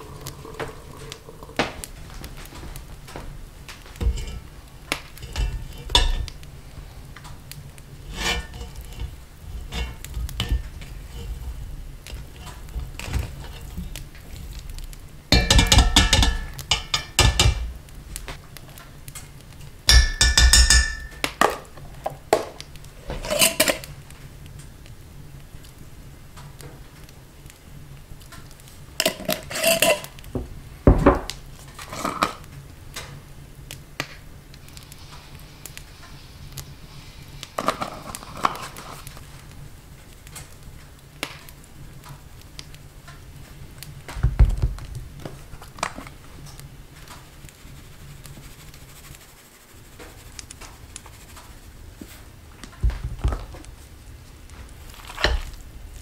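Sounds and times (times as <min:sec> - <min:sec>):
dishes and utensils clattering: 0:00.0 - 0:01.8, 0:04.0 - 0:06.4, 0:08.1 - 0:14.0, 0:15.3 - 0:17.8, 0:19.9 - 0:23.9, 0:29.0 - 0:30.2, 0:30.9 - 0:32.4
rustling: 0:00.0 - 0:19.9, 0:43.4 - 0:56.0
steady low hum: 0:01.9 - 0:18.3.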